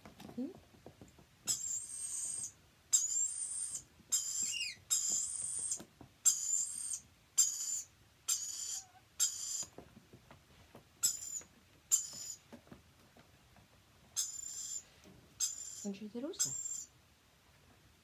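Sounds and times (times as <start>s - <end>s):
lorikeet begging calls: 1.5s - 9.7s, 11.0s - 12.4s, 14.2s - 16.9s.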